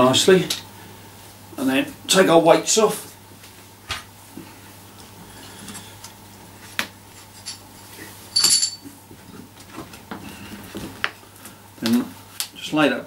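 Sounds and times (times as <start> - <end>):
metallic clink ringing: 7.4 - 8.9.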